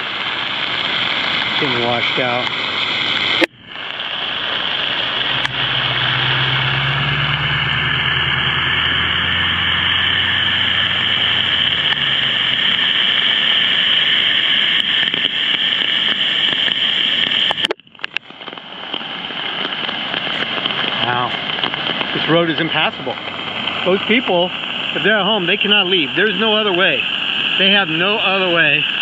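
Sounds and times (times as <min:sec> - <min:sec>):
heavy rain: 0:00.0 - 0:29.0
running floodwater: 0:00.0 - 0:29.0
truck engine rumbling past: 0:05.2 - 0:13.1, 0:22.2 - 0:26.1.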